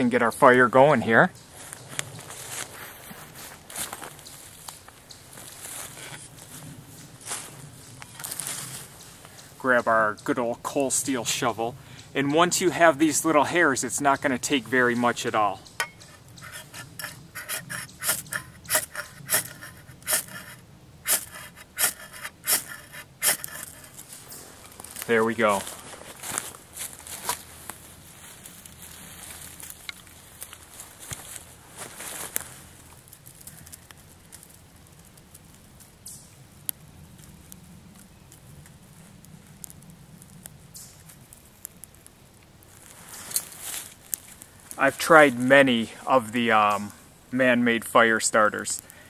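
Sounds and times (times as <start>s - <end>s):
twigs clicking and snapping: 1.4s - 47.0s
ferro rod rasping strikes: 15.7s - 24.0s.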